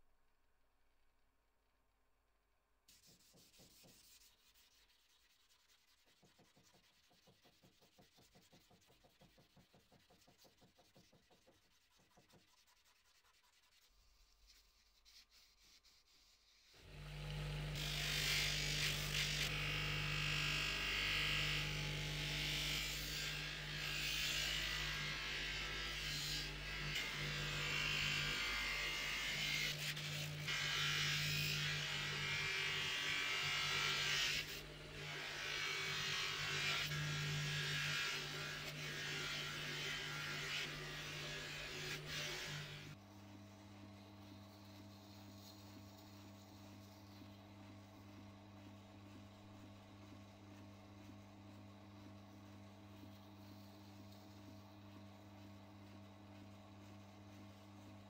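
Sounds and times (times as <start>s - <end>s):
sandpaper rubbing on blade: 2.9s - 16.8s
power polishing tool running: 16.8s - 20.7s.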